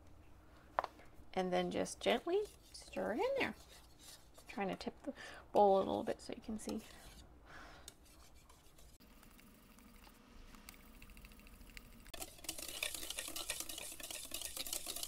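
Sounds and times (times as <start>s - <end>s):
wire whisk stirring in bowl: 1.7s - 4.8s, 6.5s - 7.2s, 7.9s - 9.4s, 11.0s - 15.0s
whisk wires scraping bowl: 1.7s - 4.9s, 6.5s - 7.3s, 7.9s - 9.4s, 11.0s - 15.0s.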